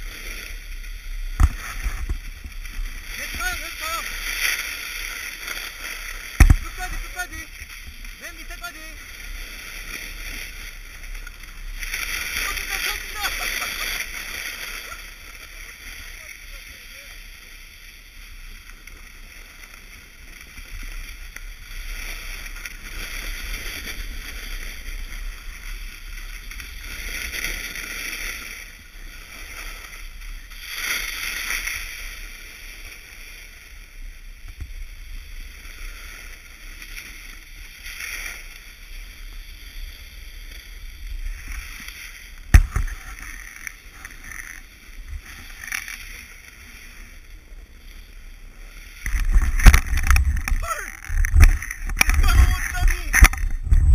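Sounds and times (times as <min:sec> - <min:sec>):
snowboard edges scraping snow: 0:00.0 - 0:53.9.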